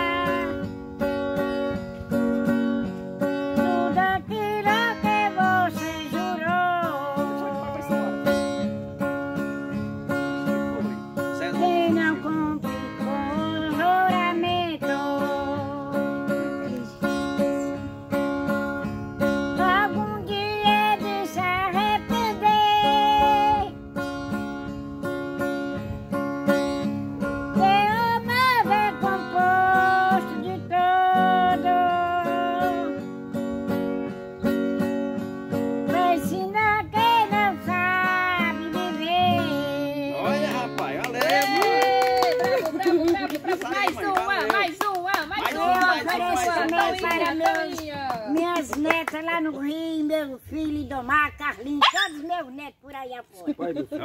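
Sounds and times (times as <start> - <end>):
elderly woman singing: 0.0 - 1.1, 3.2 - 8.8, 10.4 - 17.9, 19.2 - 23.8, 27.2 - 33.1, 35.8 - 40.6, 41.5 - 52.6
acoustic guitar strumming: 0.0 - 50.2.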